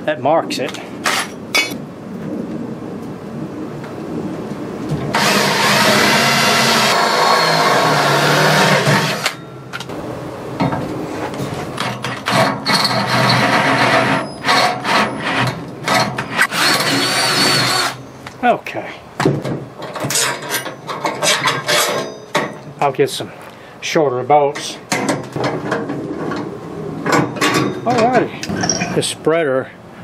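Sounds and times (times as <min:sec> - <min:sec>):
power drill running: 0:05.1 - 0:09.4, 0:16.3 - 0:18.0
clicks and knocks of parts handled: 0:09.2 - 0:09.9.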